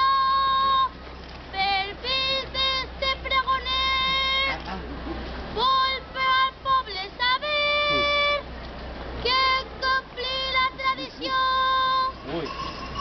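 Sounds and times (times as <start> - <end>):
boy singing in high voice: 0.0 - 0.9, 1.5 - 4.6, 5.6 - 8.5, 9.2 - 12.2.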